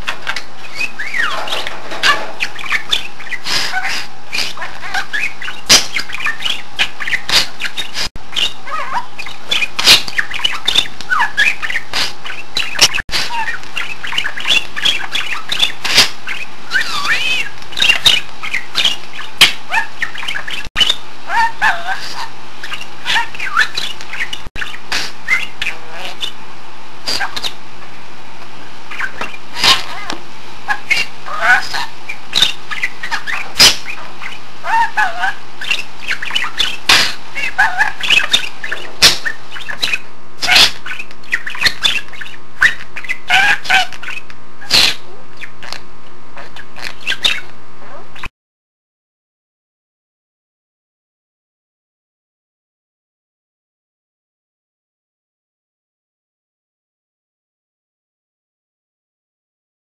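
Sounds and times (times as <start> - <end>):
budgerigar chattering: 0.0 - 26.4, 30.7 - 45.8, 46.4 - 48.3
sharp bird calls: 0.0 - 26.4, 30.7 - 45.8, 46.4 - 47.5.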